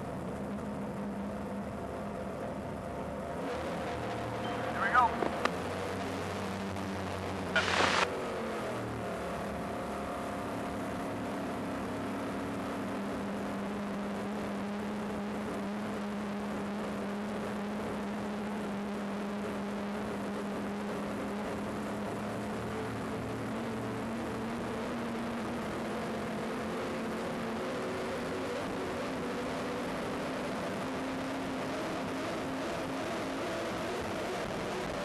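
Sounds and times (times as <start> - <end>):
rushing noise: 3.5 - 5.5, 7.5 - 8.1.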